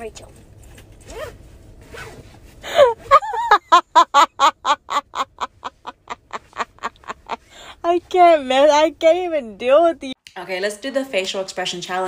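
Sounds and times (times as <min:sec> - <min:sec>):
person laughing hard: 0:02.7 - 0:07.7.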